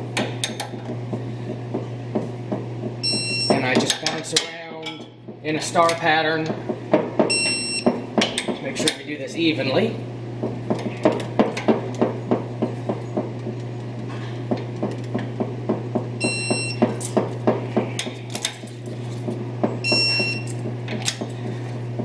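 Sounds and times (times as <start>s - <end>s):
steady low hum: 0.0s - 22.0s
short beeps: 3.0s - 3.6s, 7.3s - 7.9s, 16.2s - 16.8s, 19.8s - 20.5s.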